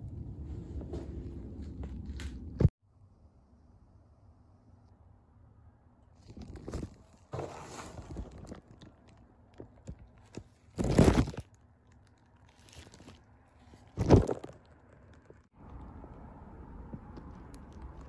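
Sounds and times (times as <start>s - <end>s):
cardboard rustling: 6.2s - 11.5s
cardboard box crunching: 10.0s - 11.6s, 12.4s - 14.6s.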